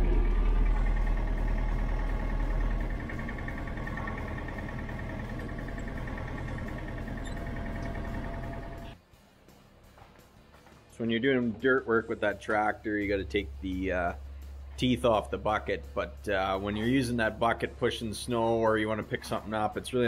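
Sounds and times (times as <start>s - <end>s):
tractor diesel engine running: 0.0s - 9.0s.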